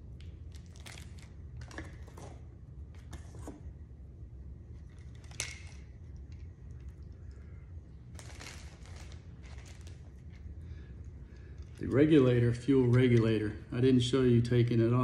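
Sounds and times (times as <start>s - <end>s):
steady low hum: 0.0s - 15.0s
packaging rustling: 0.5s - 2.4s, 8.1s - 10.5s.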